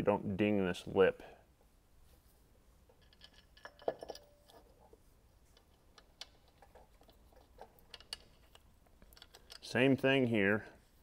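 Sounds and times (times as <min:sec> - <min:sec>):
faint metallic clicks and clinks: 0:02.9 - 0:09.9.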